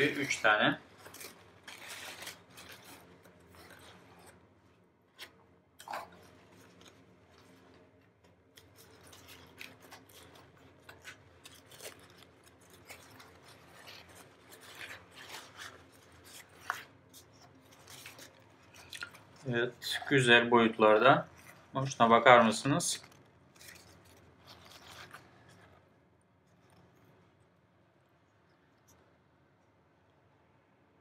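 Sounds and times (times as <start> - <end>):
paper rustling and crinkling: 0.0 - 4.4, 5.1 - 25.9
scissors snipping tape and paper: 8.6 - 18.9.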